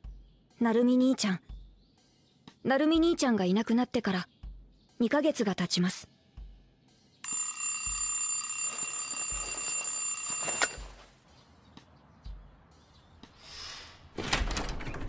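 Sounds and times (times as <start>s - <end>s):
mechanical alarm clock ringing: 7.3s - 10.9s.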